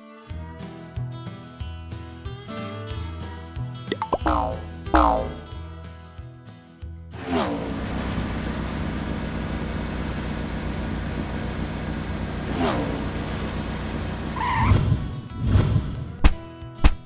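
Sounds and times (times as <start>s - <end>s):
cartoon car engine running: 4.0s - 5.5s, 7.6s - 15.0s.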